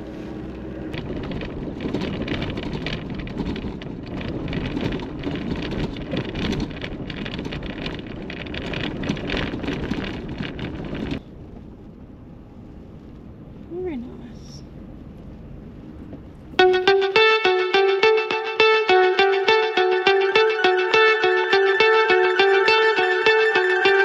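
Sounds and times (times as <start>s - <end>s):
road and engine noise: 0.0s - 16.6s
rain crackling on car: 0.4s - 16.6s.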